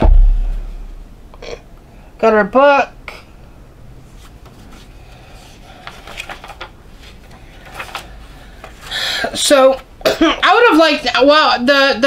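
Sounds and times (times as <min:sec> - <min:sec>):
paper pages rustling: 0:04.1 - 0:08.9.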